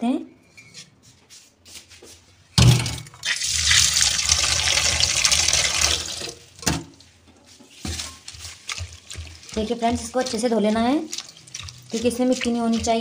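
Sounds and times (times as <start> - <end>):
tap water running into steel bowl: 3.2 - 6.8, 7.9 - 13.0.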